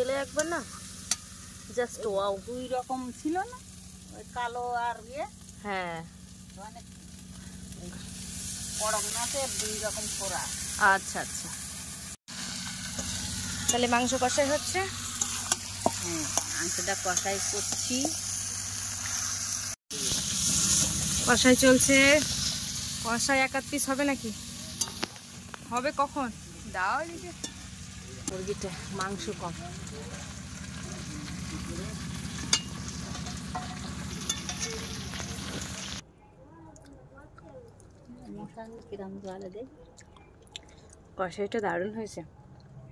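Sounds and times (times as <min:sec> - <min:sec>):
meat sizzling in oil: 0:00.0 - 0:36.0
metal spatula scraping a pan: 0:12.4 - 0:18.2, 0:31.5 - 0:36.0.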